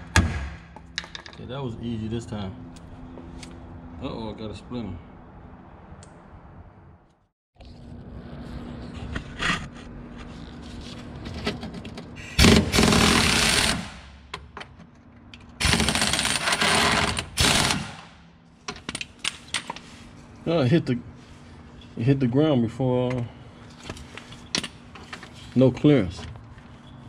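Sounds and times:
pneumatic impact wrench: 12.2 - 14.1, 15.6 - 18.2.

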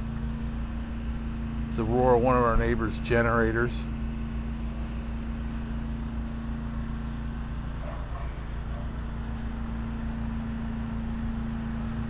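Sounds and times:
generator engine running: 0.0 - 12.0.

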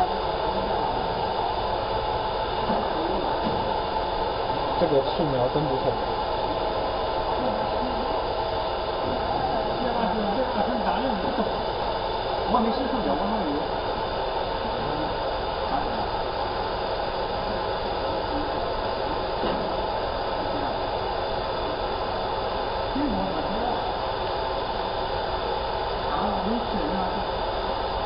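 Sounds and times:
laser marking machine hum: 0.0 - 28.0
faint voices: 17.1 - 21.9.

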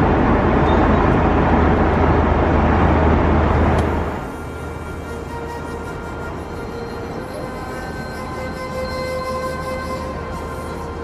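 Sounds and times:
steady noisy rumble: 0.0 - 11.0
music of long held notes: 3.6 - 11.0.

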